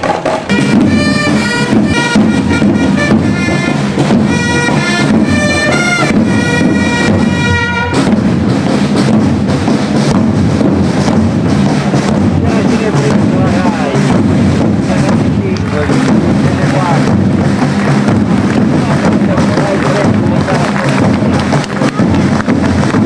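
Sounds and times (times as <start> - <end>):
marching drums beating: 0.0 - 23.0
reedy wind instrument melody: 0.5 - 23.0.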